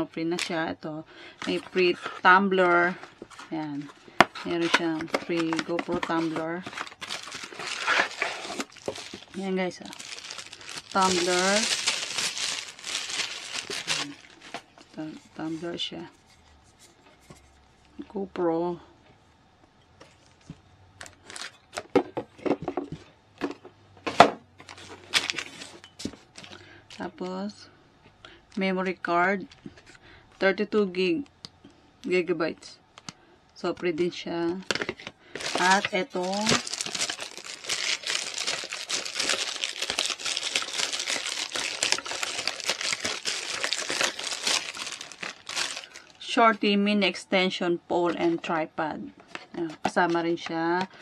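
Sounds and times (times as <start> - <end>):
rustling of handled objects: 1.3 - 18.0, 34.6 - 46.2
plastic packaging crinkling: 1.4 - 15.7, 21.0 - 21.6, 24.6 - 27.1, 35.3 - 46.3.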